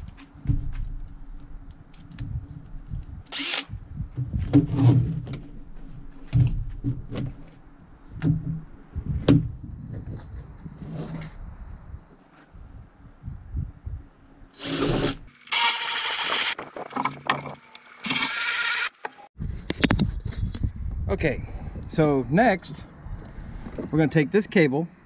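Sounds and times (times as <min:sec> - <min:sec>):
power drill boring: 0:03.3 - 0:03.7, 0:14.6 - 0:16.6, 0:17.7 - 0:19.0.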